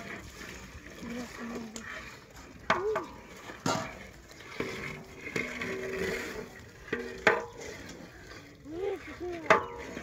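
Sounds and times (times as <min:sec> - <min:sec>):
liquid sloshing: 0:00.0 - 0:10.0
paddle knocking metal pot: 0:01.5 - 0:08.0, 0:09.3 - 0:10.0.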